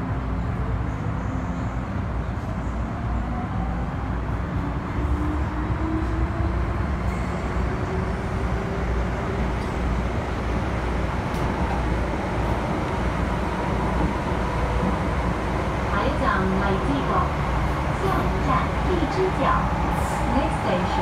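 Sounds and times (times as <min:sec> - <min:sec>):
wheels rumbling on rail: 0:00.0 - 0:21.0.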